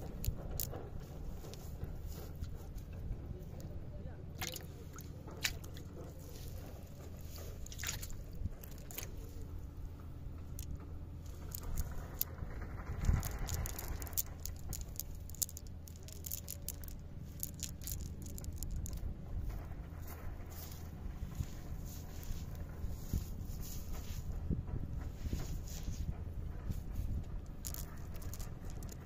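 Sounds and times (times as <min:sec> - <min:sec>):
steady low rumble: 0:00.0 - 0:29.0
wet fishing net clicks and rustles: 0:04.4 - 0:09.6, 0:10.4 - 0:19.0, 0:27.0 - 0:29.0.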